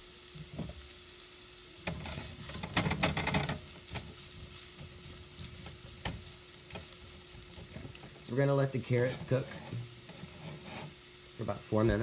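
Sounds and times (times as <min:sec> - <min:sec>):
vegetables sizzling in a frying pan: 0:00.0 - 0:12.0
spatula scraping a pan: 0:01.8 - 0:11.2.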